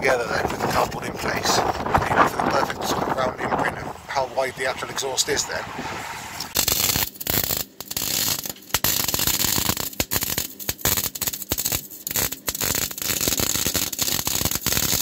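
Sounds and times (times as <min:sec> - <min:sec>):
arc welding crackle: 0:06.4 - 0:15.0.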